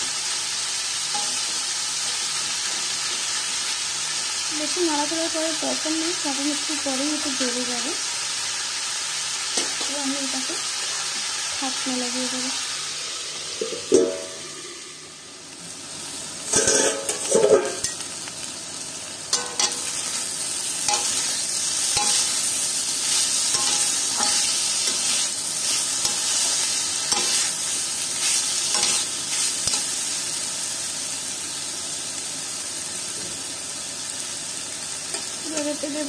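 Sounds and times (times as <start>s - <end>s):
vegetables sizzling in a pan: 0.0s - 36.0s
metal spatula scraping and stirring: 16.5s - 17.9s, 20.9s - 29.9s.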